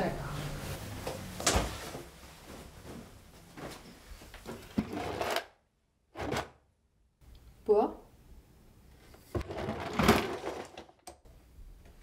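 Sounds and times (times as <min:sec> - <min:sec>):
clothing rustling: 0:00.3 - 0:04.8.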